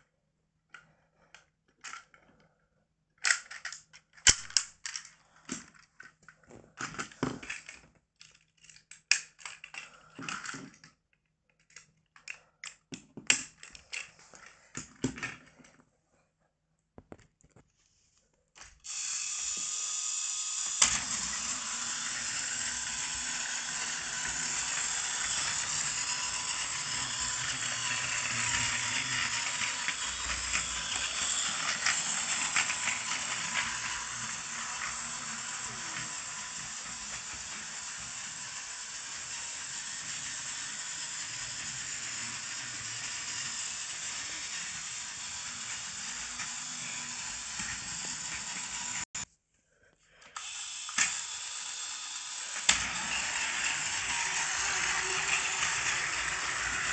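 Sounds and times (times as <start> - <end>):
toy train motor whirring: 0.8 - 2.3, 3.2 - 6.1, 6.8 - 11.0, 11.6 - 15.5, 18.6 - 49.3, 50.2 - 56.9
wheels clicking on plastic track: 18.8 - 49.2, 50.4 - 56.9.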